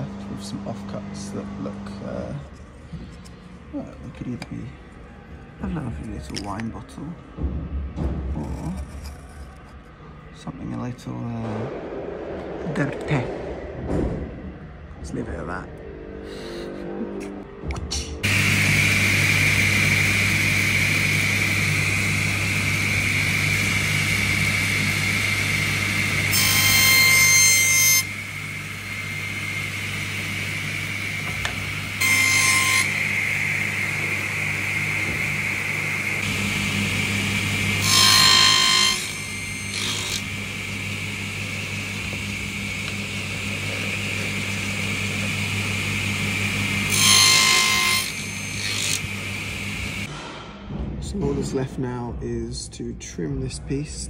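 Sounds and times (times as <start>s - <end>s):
table saw whine: 18.2s - 50.1s
saw blade cutting wood: 25.8s - 28.1s, 31.5s - 33.8s, 37.6s - 40.4s, 46.8s - 49.2s.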